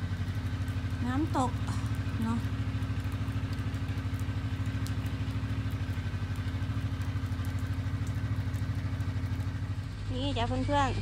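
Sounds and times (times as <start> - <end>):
snowmobile engine idling: 0.0 - 11.0.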